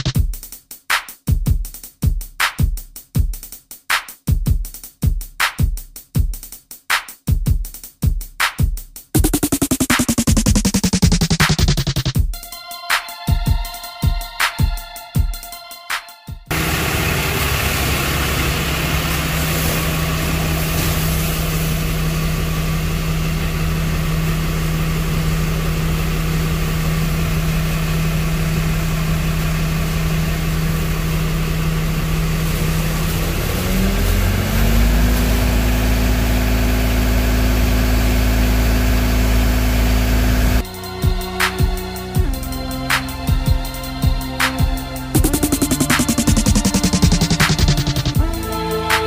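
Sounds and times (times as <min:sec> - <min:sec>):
pickup truck engine idling: 0:16.5 - 0:40.6.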